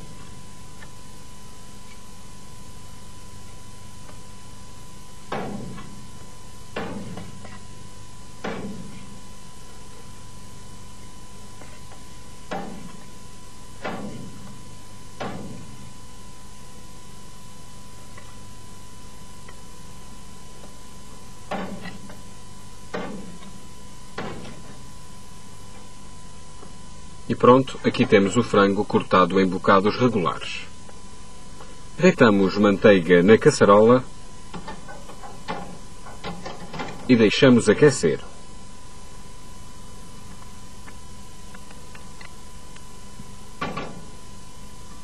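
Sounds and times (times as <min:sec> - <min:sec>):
electrical hum with high tone: 0:00.0 - 0:45.0.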